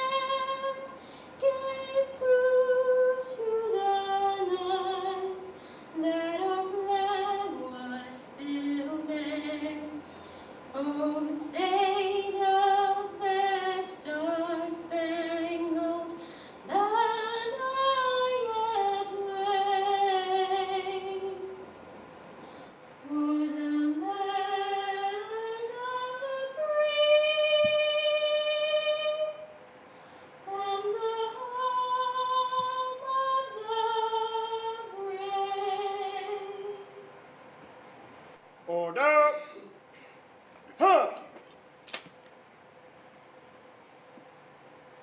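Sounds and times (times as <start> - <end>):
woman singing through pa: 0.0 - 10.0, 10.7 - 21.6, 23.0 - 29.5, 30.5 - 37.1.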